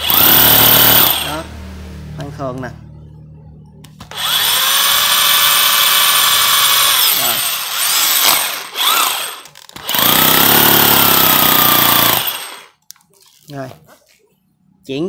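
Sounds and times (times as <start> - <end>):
cordless drill motor whine: 0.0 - 1.4, 4.1 - 12.8.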